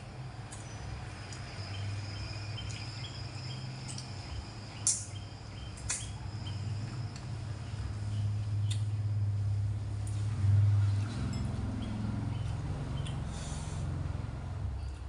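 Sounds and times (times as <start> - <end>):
steady low hum: 0.0 - 15.0
faint insect chirping: 0.6 - 8.7
mouth clicks of eating: 8.6 - 8.9.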